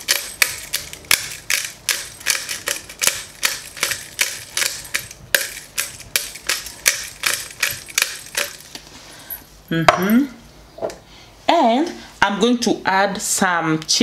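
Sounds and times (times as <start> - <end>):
pepper grinder cracking peppercorns: 0.0 - 8.9.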